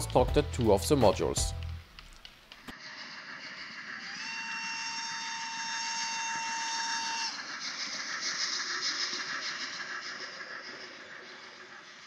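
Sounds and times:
model train running on track: 2.8s - 12.0s
model steam locomotive whistle: 4.0s - 7.4s.

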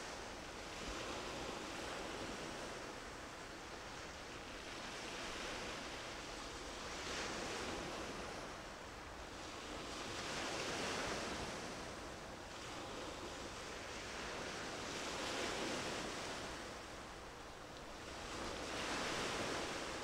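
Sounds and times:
waves washing in: 0.0s - 20.0s.

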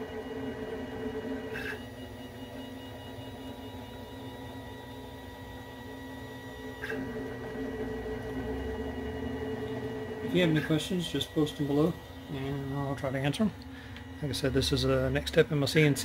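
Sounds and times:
router motors whining: 0.0s - 16.0s.

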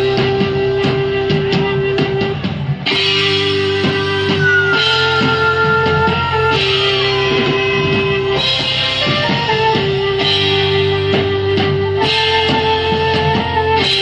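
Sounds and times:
drums: 0.0s - 14.0s
sustained bending melody line: 0.0s - 14.0s.

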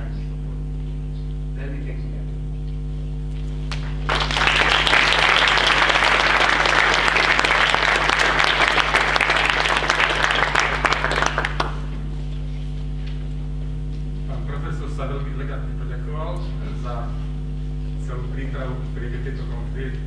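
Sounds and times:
electrical hum: 0.0s - 20.0s
audience applauding: 3.6s - 12.0s.

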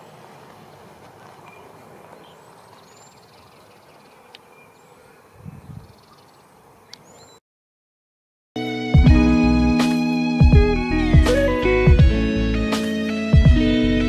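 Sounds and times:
steady background hiss: 0.0s - 7.2s
high bird chirps: 1.4s - 7.4s.

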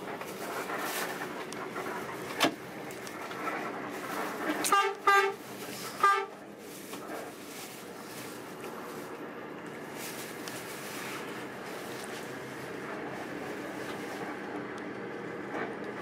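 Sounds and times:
bus running noise inside cabin: 0.0s - 16.0s
bus horn blasts: 4.5s - 6.5s.

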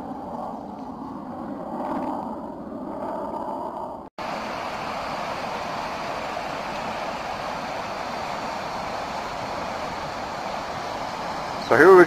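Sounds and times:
river water rushing: 4.2s - 12.0s.

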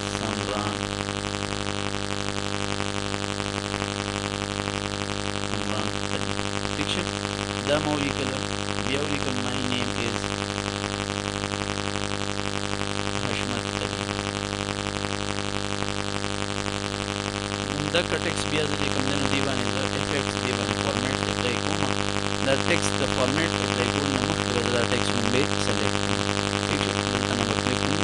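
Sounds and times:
buzzy electrical hum: 0.0s - 28.0s
faint voice murmuring: 5.5s - 10.2s, 13.2s - 14.0s, 17.6s - 26.0s.

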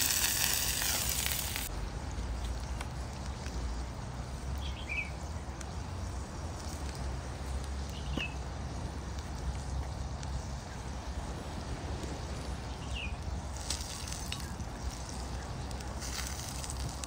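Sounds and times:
low outdoor rumble: 0.0s - 17.0s
bird chirps: 4.5s - 5.8s, 7.8s - 8.4s.

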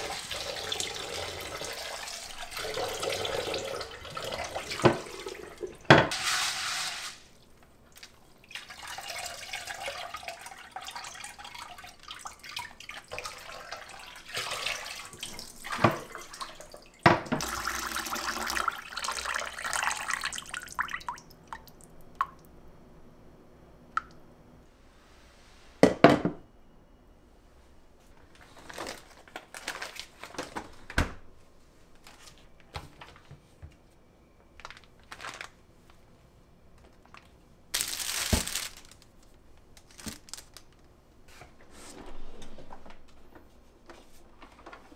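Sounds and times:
water dripping: 7.9s - 22.6s.

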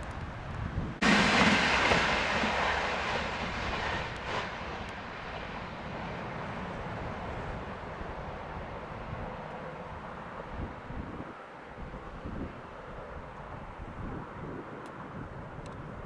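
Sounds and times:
train wheels rushing on rails: 0.0s - 10.6s.

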